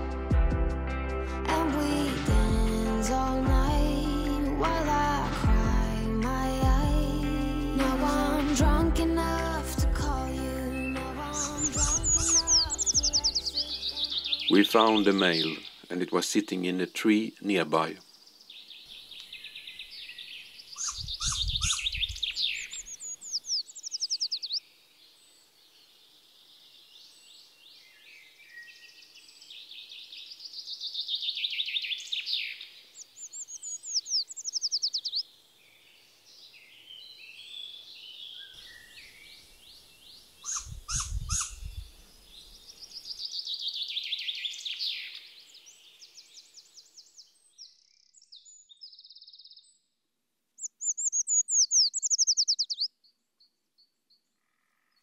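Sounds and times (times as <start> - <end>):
songbirds singing: 9.3 - 50.0, 50.6 - 55.0
short bird calls: 20.7 - 24.5, 40.4 - 41.7.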